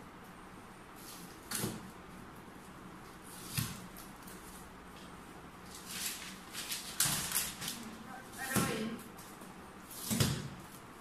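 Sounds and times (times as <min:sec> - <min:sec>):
wrapping paper rustling: 0:03.3 - 0:10.0.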